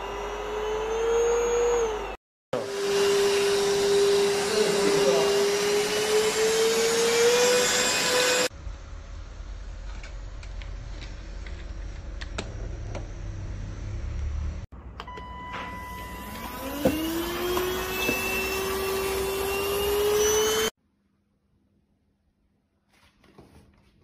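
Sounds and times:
vacuum cleaner motor whine: 0.0 - 8.5, 15.1 - 20.7.

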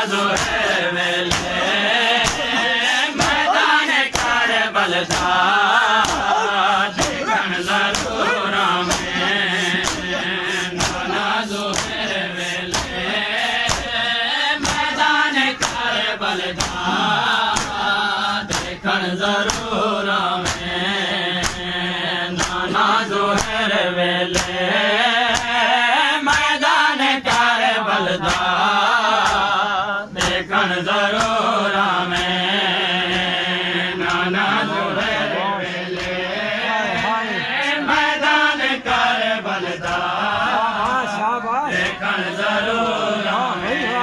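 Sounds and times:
men chanting in unison: 0.0 - 44.0
chest-beating slaps: 0.3 - 19.8, 20.4 - 20.8, 21.4 - 23.6, 24.3 - 24.6, 25.2 - 25.6, 26.3 - 26.6, 27.2 - 27.6, 28.2 - 30.5, 31.1 - 38.1.

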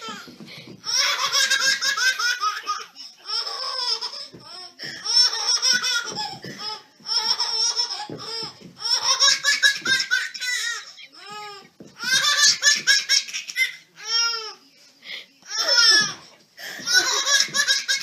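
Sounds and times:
baby laughing: 16.8 - 18.0.

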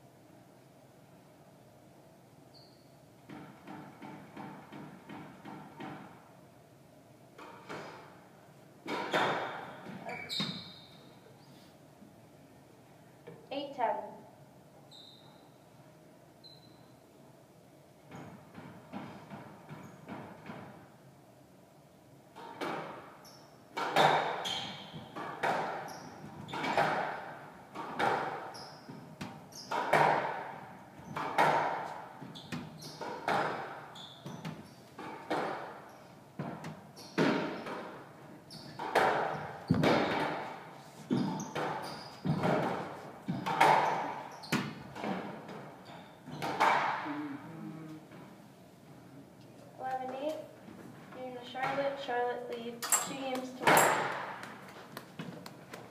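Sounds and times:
squash ball echoing knocks: 3.2 - 6.2, 22.4 - 38.2, 38.8 - 47.2, 51.5 - 55.9.

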